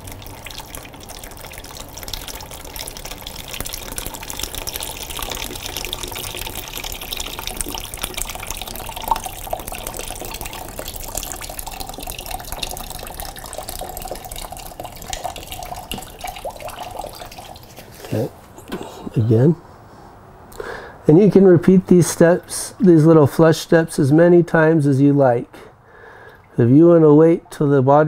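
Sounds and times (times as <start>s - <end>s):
water pouring into plastic pan: 0.0s - 18.2s.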